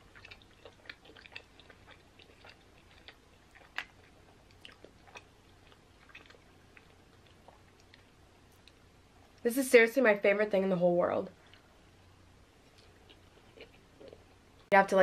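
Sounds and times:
mouth chewing sounds: 0:00.0 - 0:08.9, 0:12.6 - 0:14.7.

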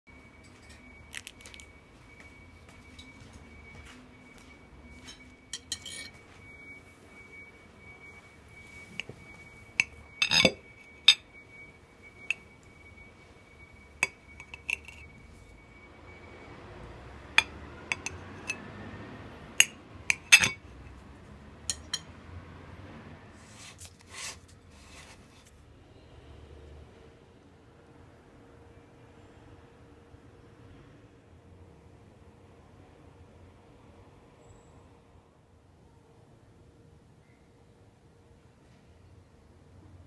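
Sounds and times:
knife clinking on porcelain plate: 0:05.1 - 0:06.2, 0:09.8 - 0:11.2, 0:14.0 - 0:15.1, 0:17.4 - 0:18.6, 0:19.6 - 0:20.7, 0:21.7 - 0:22.1.

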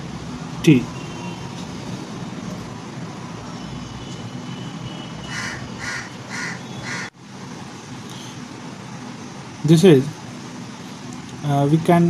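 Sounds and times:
steady background hum: 0:00.0 - 0:12.0
crow cawing: 0:05.2 - 0:07.1.

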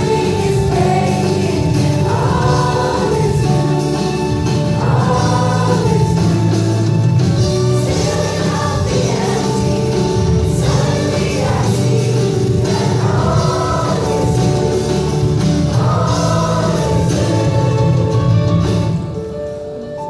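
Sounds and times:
children's chorus singing: 0:00.0 - 0:18.6.

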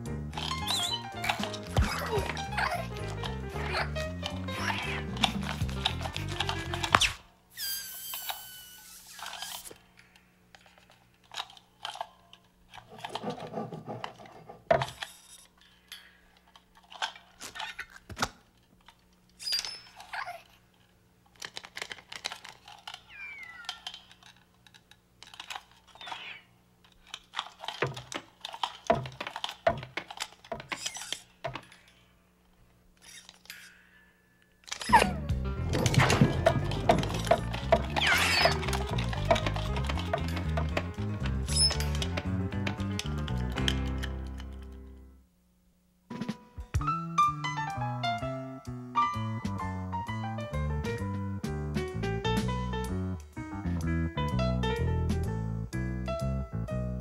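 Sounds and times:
squeaky spring creaks: 0:00.4 - 0:09.8, 0:19.4 - 0:20.5, 0:22.8 - 0:24.4, 0:30.6 - 0:32.0, 0:33.0 - 0:42.3.

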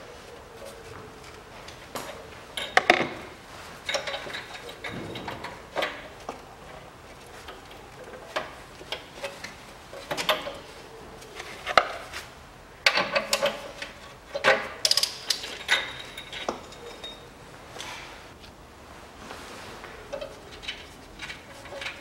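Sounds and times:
metal tools clinking on metal: 0:12.9 - 0:17.4.

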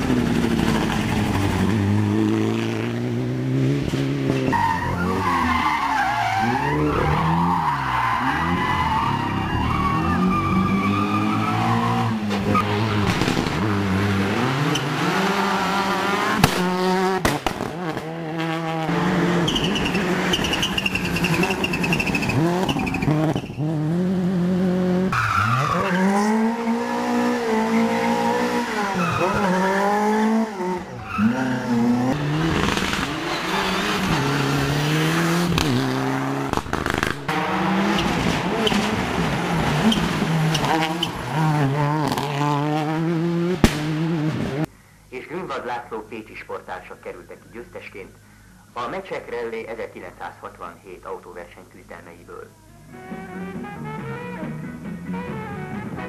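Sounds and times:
rally car engines revving: 0:00.0 - 0:44.7
tyres squealing: 0:19.4 - 0:23.6.

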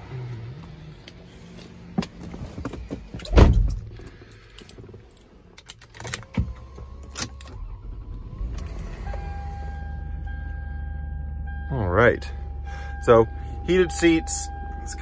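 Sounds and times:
car engine starting and idling: 0:00.0 - 0:15.0
car door shutting: 0:02.6 - 0:03.9.

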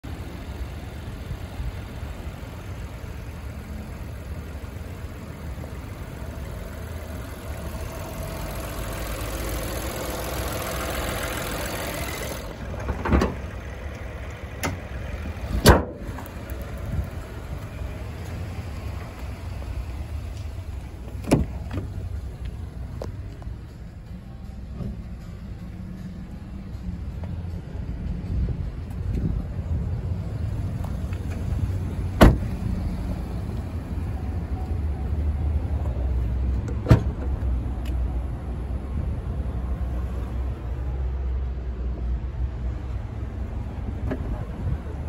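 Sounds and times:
traffic rumble: 0:00.0 - 0:45.0
car door opening and shutting: 0:12.6 - 0:13.7, 0:14.4 - 0:17.0, 0:21.0 - 0:22.0, 0:30.8 - 0:32.7, 0:36.6 - 0:37.5.

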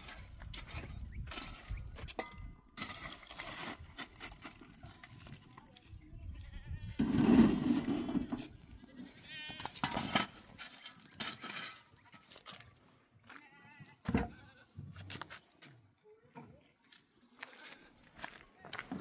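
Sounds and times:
livestock bleating: 0:08.8 - 0:09.8, 0:13.3 - 0:14.7.

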